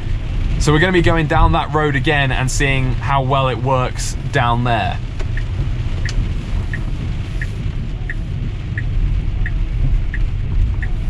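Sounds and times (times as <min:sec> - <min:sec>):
car rumbling on wet road: 0:00.0 - 0:11.0
heavy rain: 0:00.0 - 0:11.0
turn signal ticking: 0:03.9 - 0:11.0.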